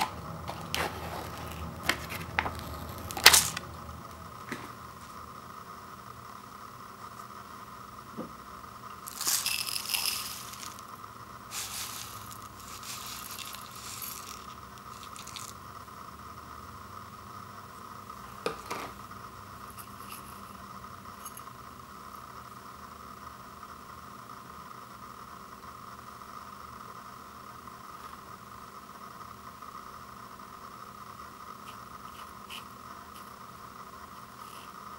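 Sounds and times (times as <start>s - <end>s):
rice poured into ceramic bowl: 9.1s - 10.9s, 11.5s - 15.6s.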